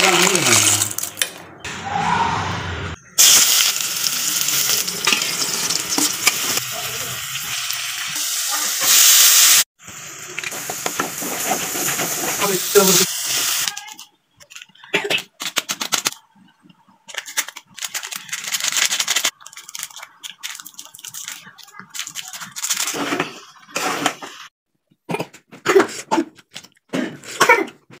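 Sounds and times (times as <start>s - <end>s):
foil sachet crinkling: 17.1s - 23.2s.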